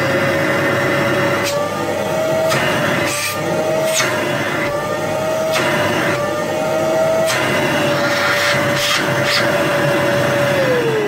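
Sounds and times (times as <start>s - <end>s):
vacuum cleaner motor whine: 0.0s - 11.0s
motor spinning down: 4.6s - 11.0s
air rushing into intake: 7.2s - 9.9s.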